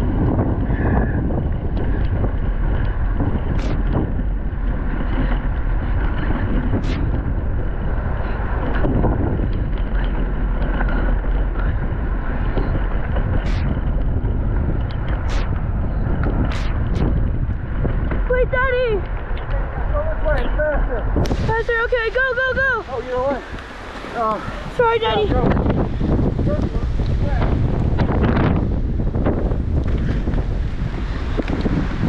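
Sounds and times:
bike rattle: 0.0s - 18.4s
wind rushing over microphone: 0.0s - 32.0s.

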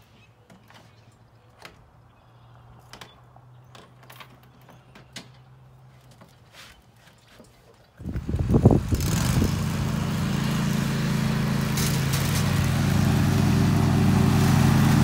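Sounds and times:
riding lawn mower humming: 8.0s - 15.0s.

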